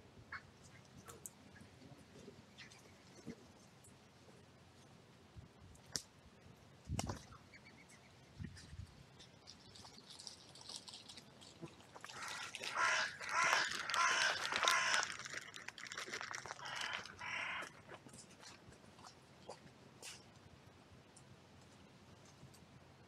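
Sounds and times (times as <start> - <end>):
crows cawing: 12.1 - 15.6, 16.5 - 17.9.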